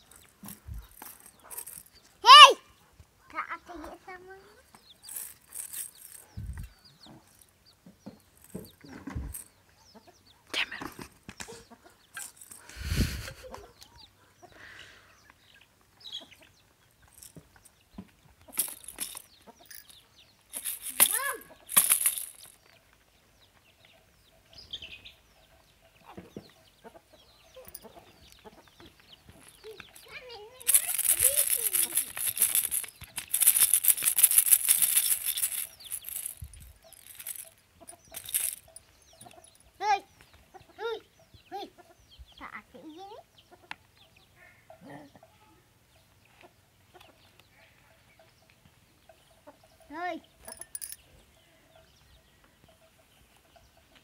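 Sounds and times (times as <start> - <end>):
plastic toy rattle shaken: 0.0 - 2.5, 5.0 - 6.7, 12.2 - 12.7, 18.5 - 22.6, 29.4 - 39.6, 50.5 - 51.0
chickens clucking: 6.3 - 17.0, 19.3 - 19.8, 23.8 - 30.6, 36.9 - 50.5.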